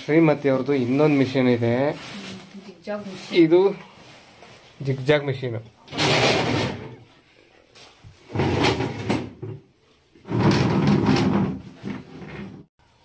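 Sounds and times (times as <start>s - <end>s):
scraping rustling handling sounds: 0.3s - 5.1s.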